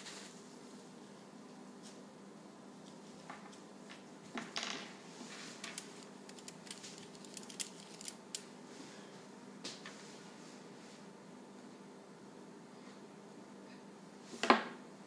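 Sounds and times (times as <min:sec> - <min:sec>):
faint room hum: 0:00.0 - 0:15.0
paper rustling: 0:05.3 - 0:08.2.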